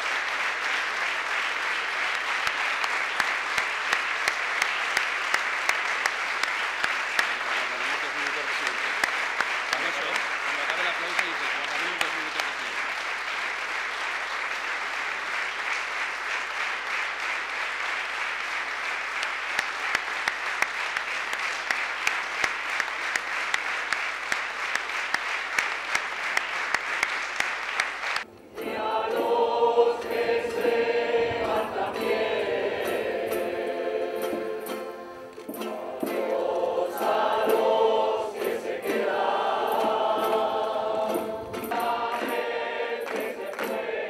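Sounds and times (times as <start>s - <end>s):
crowd applauding: 0.0s - 28.3s, 34.6s - 44.0s
crowd singing a song: 28.5s - 44.0s.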